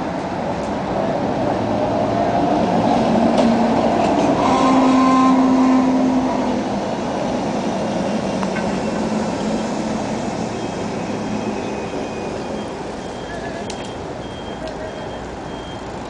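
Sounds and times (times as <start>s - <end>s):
tram hum: 0.0s - 16.0s
tram rolling on rails: 0.0s - 16.0s.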